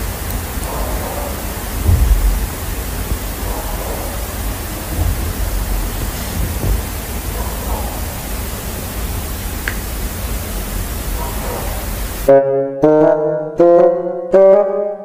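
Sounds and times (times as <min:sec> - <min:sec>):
faint voices: 0:00.0 - 0:09.5
steady hiss-like noise: 0:00.0 - 0:12.4.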